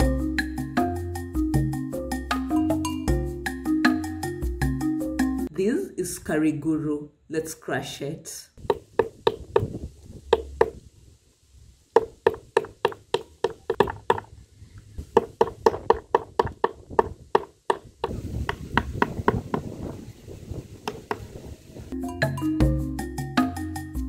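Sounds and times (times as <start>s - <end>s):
knife chopping on wooden board: 8.6s - 9.7s, 12.0s - 14.2s, 15.1s - 19.4s
wooden club striking knife: 10.3s - 10.8s, 15.1s - 19.4s.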